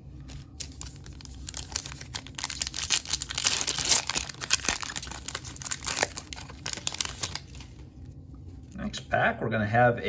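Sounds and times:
foil wrapper tearing and crinkling: 0:00.3 - 0:07.8.

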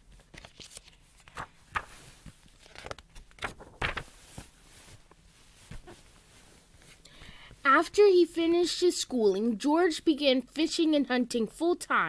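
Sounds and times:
book pages rustling: 0:00.0 - 0:07.0.

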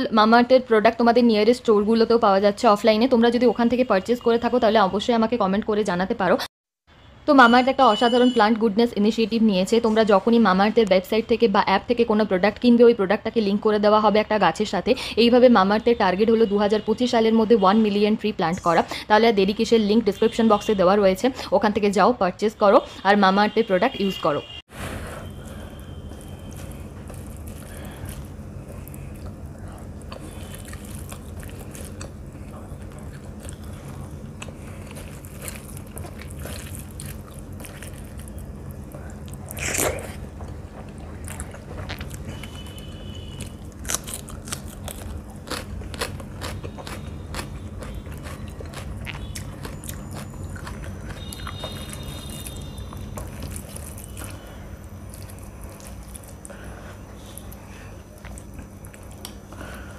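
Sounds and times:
steady low hum: 0:24.4 - 0:59.9
person chewing: 0:25.3 - 0:59.8.

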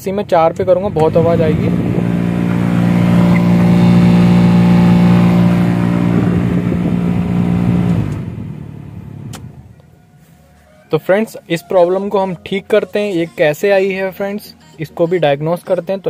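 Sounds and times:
car blower fan humming: 0:00.0 - 0:09.9.

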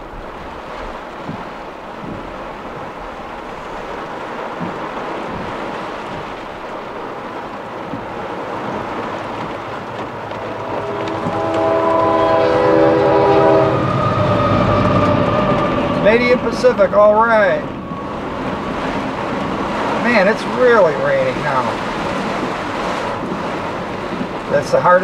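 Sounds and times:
heavy rain on car roof: 0:00.0 - 0:11.2, 0:16.0 - 0:25.0
locomotive rumble: 0:00.0 - 0:25.0
train horn: 0:10.2 - 0:16.6.

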